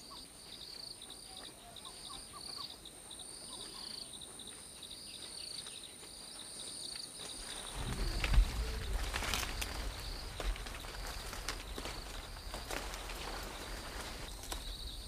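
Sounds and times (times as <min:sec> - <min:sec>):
insects chirping: 0:00.0 - 0:15.0
insects whining: 0:06.6 - 0:15.0
low rumble: 0:07.7 - 0:14.2.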